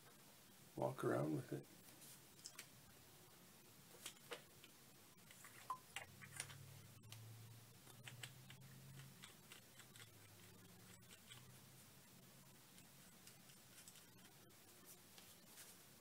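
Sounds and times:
faint low hum: 0.0 - 16.0
small clicks and ticks: 2.4 - 2.8, 3.9 - 11.6, 12.4 - 14.4.

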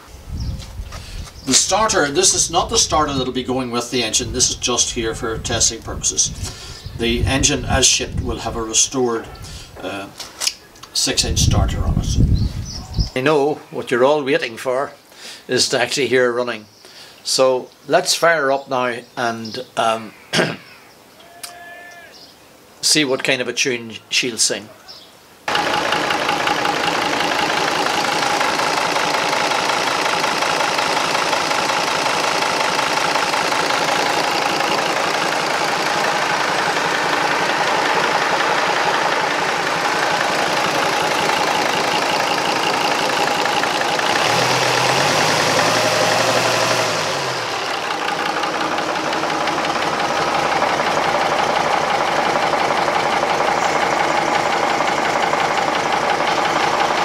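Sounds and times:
diesel engine running: 1.0 - 3.4, 25.5 - 57.0.

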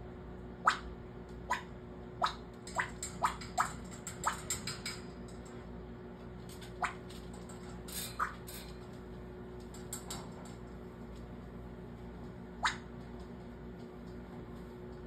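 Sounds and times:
parrot making popping noises: 12.6 - 12.9.

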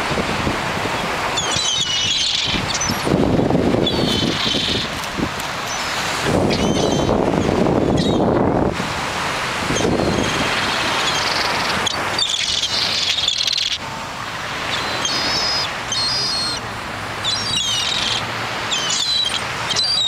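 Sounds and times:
surf: 0.0 - 20.0
wind: 0.0 - 20.0
gulls calling: 0.8 - 8.4, 9.6 - 20.0.

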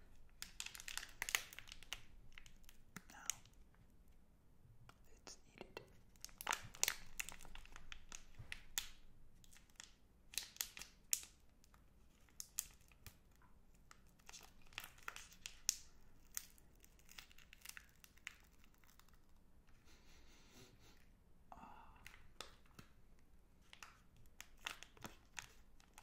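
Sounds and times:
wrapper crinkling: 0.2 - 3.5, 6.1 - 19.4, 23.6 - 26.0.

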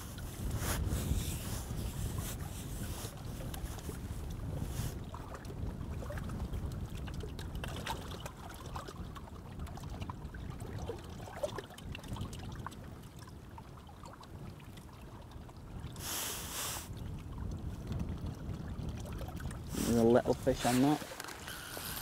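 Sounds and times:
small waves lapping: 0.0 - 22.0
wind rumbling on microphone: 0.0 - 22.0
short hissing rush: 16.0 - 16.9.

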